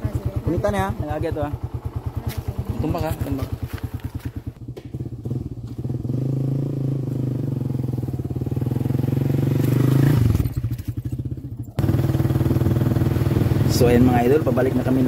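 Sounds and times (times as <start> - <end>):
small motorcycle engine passing: 0.0 - 15.0
loud close engine: 11.7 - 15.0.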